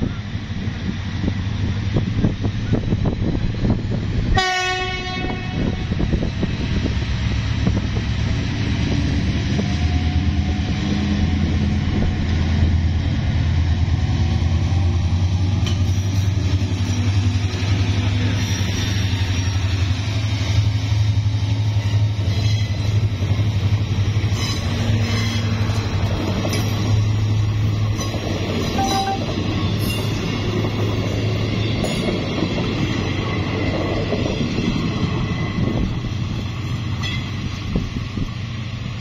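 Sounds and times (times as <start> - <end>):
diesel locomotive engine: 0.0 - 39.0
train horn blast: 4.3 - 6.0, 28.7 - 29.4.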